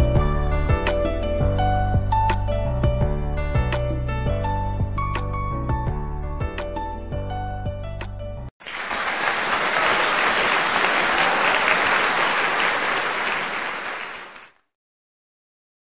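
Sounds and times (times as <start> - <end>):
applause: 8.6 - 14.7.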